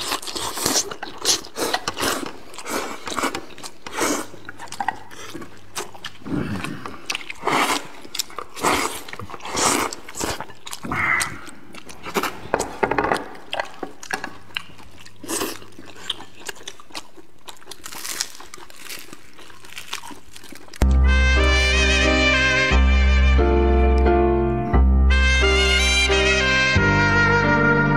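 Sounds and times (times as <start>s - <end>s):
biting and chewing food: 0.0s - 20.9s.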